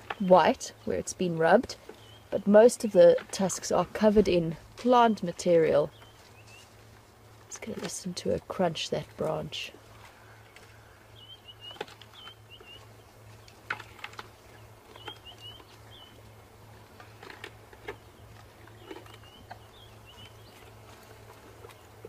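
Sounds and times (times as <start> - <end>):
elephant chewing crunching wood: 0.0 - 5.0, 5.9 - 22.0
bird chirping: 1.9 - 2.4, 5.8 - 6.7, 10.2 - 16.3, 17.8 - 20.8.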